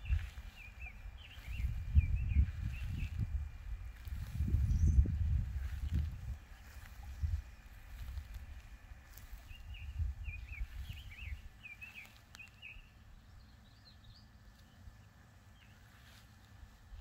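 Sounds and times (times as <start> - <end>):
songbird warbling: 0.0 - 3.2, 9.1 - 16.2
low rumble: 0.0 - 11.8.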